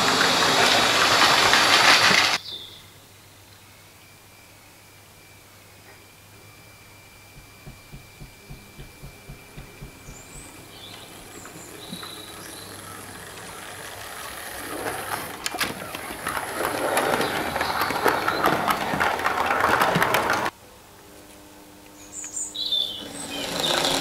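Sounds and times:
model train wheels clicking on track: 0:00.0 - 0:02.4, 0:07.3 - 0:20.5, 0:23.0 - 0:24.0
soft regular beat: 0:07.3 - 0:10.6.

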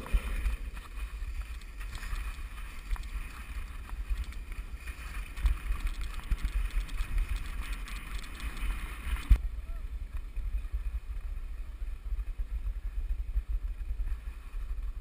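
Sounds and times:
skis sliding over snow: 0:00.0 - 0:09.4
wind buffeting microphone: 0:00.0 - 0:15.0
small clicks: 0:00.9 - 0:09.4.

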